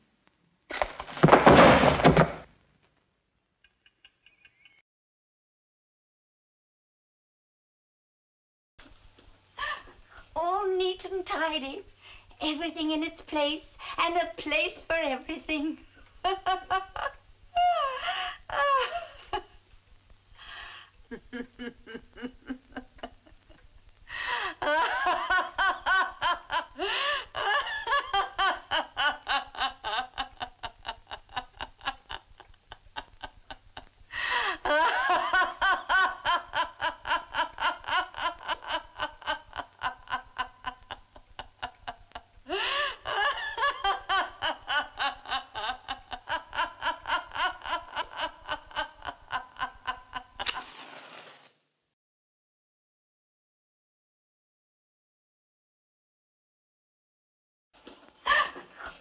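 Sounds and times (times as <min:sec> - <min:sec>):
woman laughing loudly: 0:16.3 - 0:19.6, 0:21.1 - 0:23.6, 0:24.2 - 0:50.7, 0:58.3 - 0:58.8.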